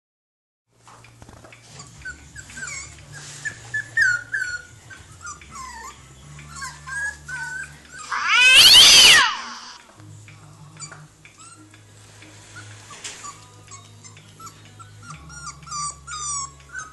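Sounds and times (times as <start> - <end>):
puppies whining: 1.6 - 9.8, 10.8 - 11.8, 12.5 - 16.9
puppy squealing: 1.8 - 9.8, 13.2 - 16.9.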